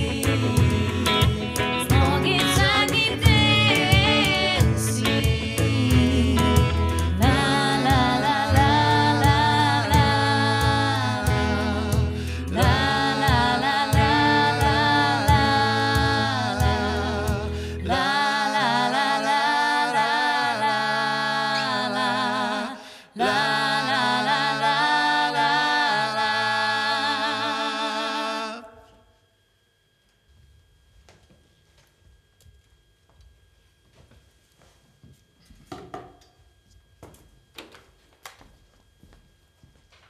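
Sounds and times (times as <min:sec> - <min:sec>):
live pop band playing: 0:00.0 - 0:17.8
woman singing: 0:00.0 - 0:28.8.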